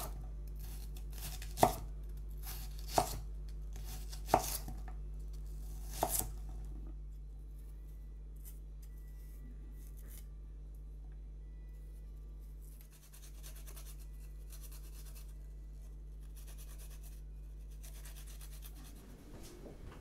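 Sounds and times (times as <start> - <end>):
knife chopping on wooden board: 1.2 - 3.2, 3.8 - 4.8, 5.8 - 6.4
low hum: 4.6 - 20.0.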